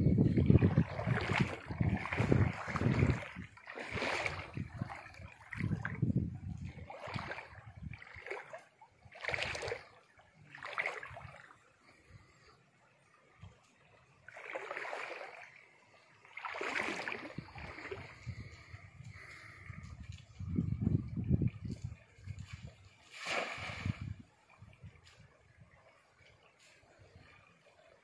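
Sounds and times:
stream water splashing: 0:00.0 - 0:12.4, 0:13.2 - 0:28.0.

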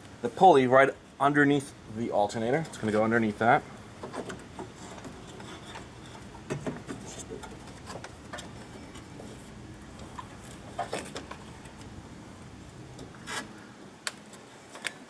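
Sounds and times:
rubber belt scraping pulleys: 0:04.0 - 0:11.5, 0:13.1 - 0:13.6.

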